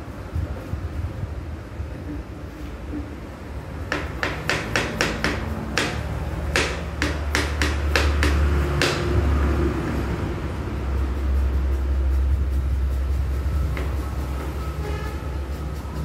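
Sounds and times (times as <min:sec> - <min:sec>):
knife chopping on wooden board: 0:03.9 - 0:09.1
low rumble: 0:08.4 - 0:16.0.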